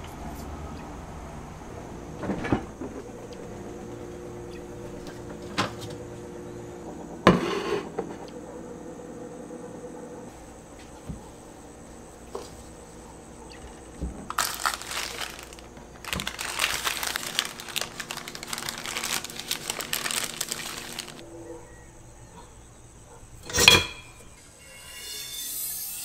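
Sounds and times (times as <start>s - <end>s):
paper crinkling: 13.7s - 21.2s
metal utensils clattering: 23.4s - 24.2s.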